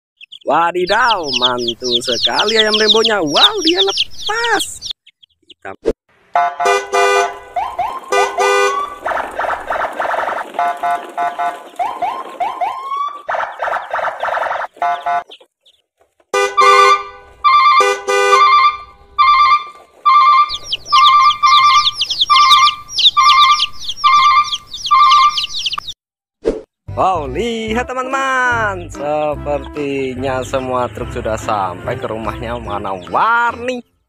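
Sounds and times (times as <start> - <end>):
warbling alarm tone: 7.5 - 13.3, 17.4 - 25.4.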